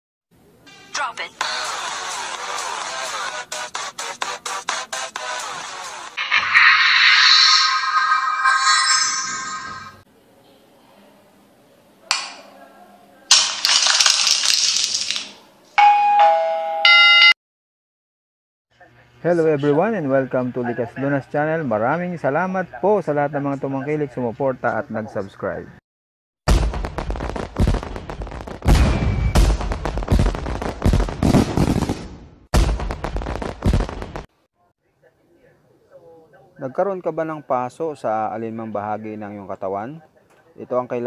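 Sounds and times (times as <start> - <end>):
fireworks crackling pops: 13.3 - 15.4, 26.5 - 34.3
two-note bell chime: 15.8 - 17.4
fireworks deep booms: 26.5 - 34.3.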